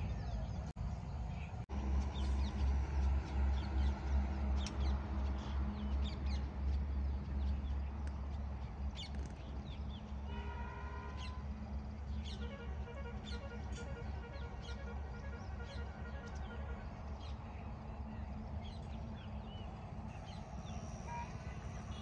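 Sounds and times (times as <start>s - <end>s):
birds chirping: 0.0s - 22.0s.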